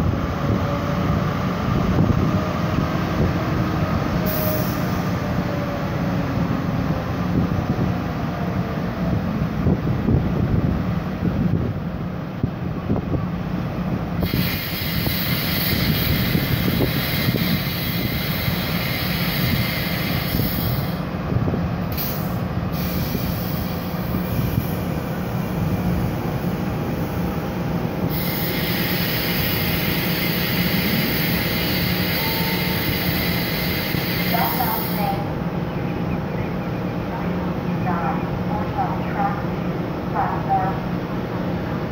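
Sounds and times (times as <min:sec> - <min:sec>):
diesel locomotive engine running: 0:00.0 - 0:41.9
wheels squealing and hissing: 0:14.2 - 0:21.0, 0:28.1 - 0:35.1.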